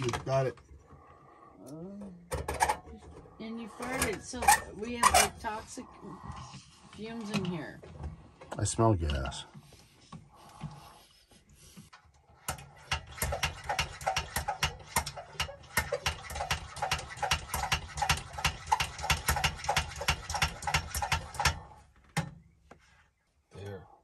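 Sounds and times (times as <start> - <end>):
hand pump clicking: 12.4 - 21.6.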